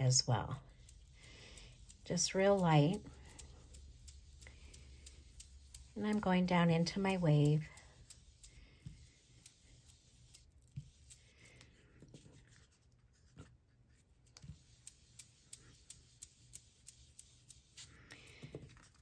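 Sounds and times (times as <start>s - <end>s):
brush dabbing on cardstock: 0.0s - 19.0s.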